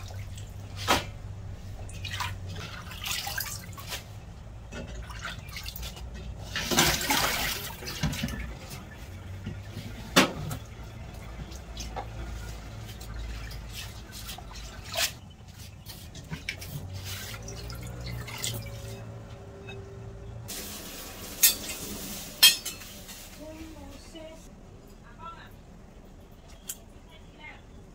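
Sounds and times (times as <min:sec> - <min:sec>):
water sloshing and dripping: 0:00.0 - 0:23.8
water splashing and rushing: 0:16.4 - 0:19.1.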